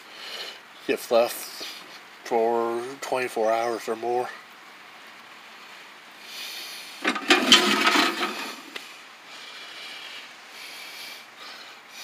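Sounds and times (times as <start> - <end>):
rough scraping rub: 7.0 - 8.8.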